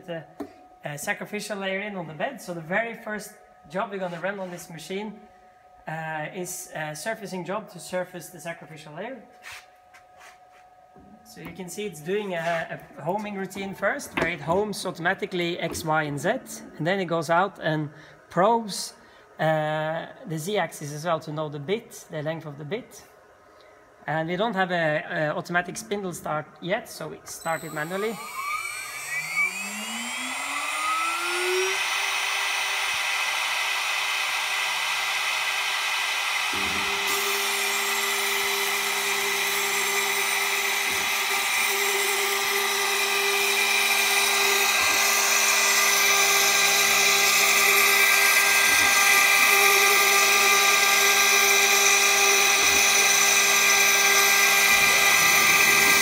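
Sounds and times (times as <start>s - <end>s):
spindle whine: 23.6s - 56.0s
stepper motors humming: 27.2s - 56.0s.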